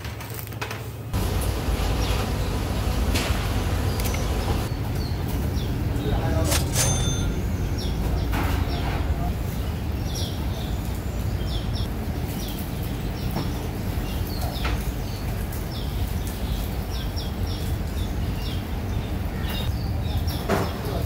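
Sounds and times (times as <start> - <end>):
low background rumble: 1.1 - 13.2
small birds chirping: 1.2 - 21.0.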